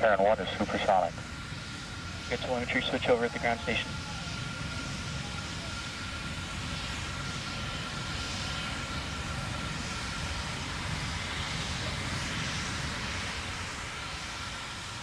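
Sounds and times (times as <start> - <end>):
rocket engines firing: 0.0 - 10.9.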